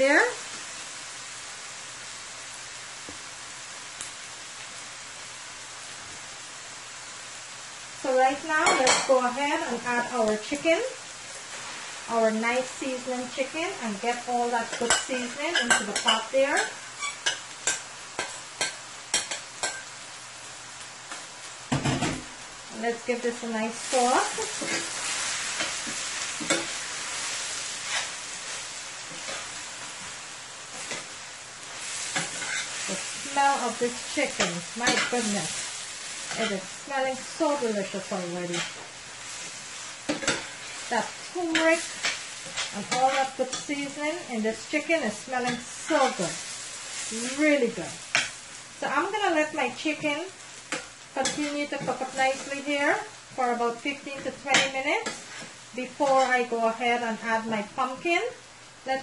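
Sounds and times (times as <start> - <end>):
vegetables sizzling in oil: 0.0 - 59.0
metal spoon scraping pan: 32.0 - 35.5, 40.1 - 44.0.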